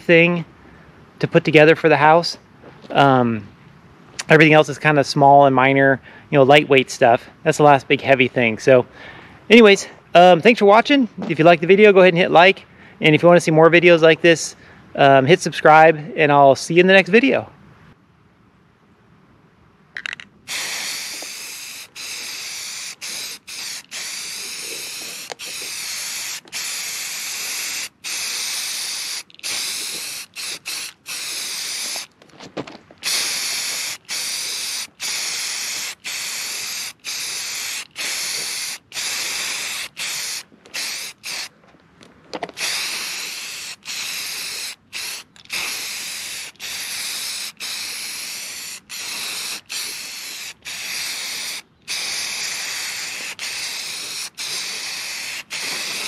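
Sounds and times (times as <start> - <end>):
spray paint can hissing: 20.0 - 32.1, 33.0 - 41.5, 42.5 - 56.0.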